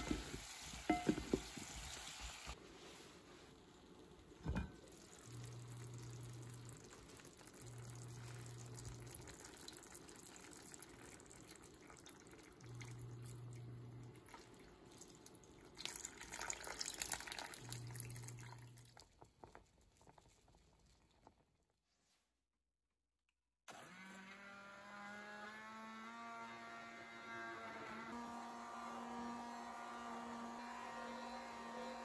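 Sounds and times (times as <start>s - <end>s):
cooking sizzle: 0.0s - 9.8s
liquid pouring into a pan: 3.6s - 13.0s, 14.2s - 21.5s.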